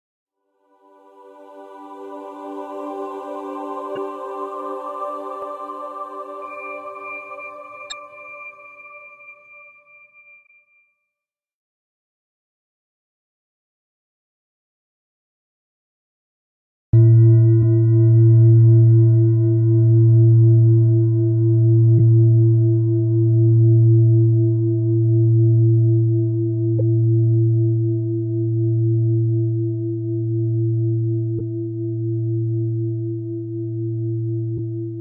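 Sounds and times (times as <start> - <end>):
singing bowl ringing: 1.0 - 10.8.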